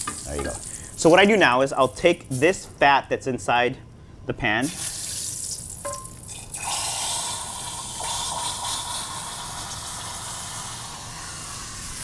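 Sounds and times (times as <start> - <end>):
fat pouring into glass cup: 4.8 - 11.7.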